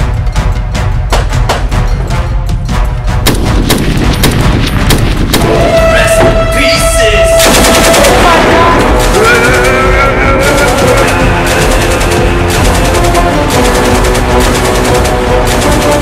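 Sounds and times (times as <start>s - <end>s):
music track: 0.0s - 16.0s
gunfire sound effects: 3.2s - 6.3s, 7.4s - 16.0s
held musical tones: 5.4s - 14.1s.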